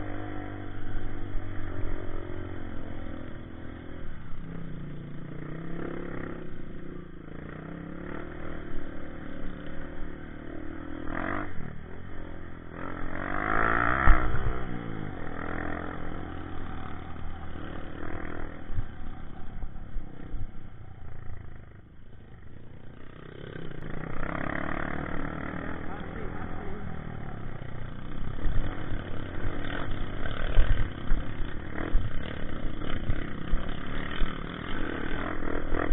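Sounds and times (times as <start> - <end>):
dirt bike engine revving: 0.0 - 21.5, 22.6 - 35.9.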